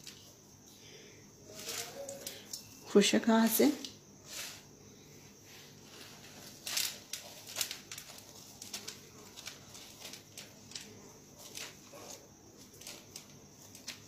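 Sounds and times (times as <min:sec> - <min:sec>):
snack crumbs crackling and rustling: 0:05.8 - 0:14.0.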